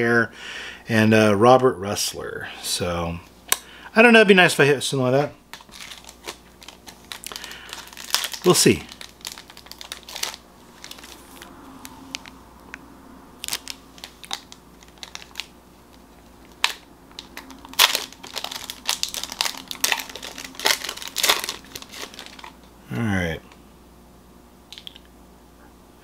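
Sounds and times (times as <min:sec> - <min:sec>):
wrapper crinkling: 0:05.5 - 0:12.3, 0:13.4 - 0:22.7.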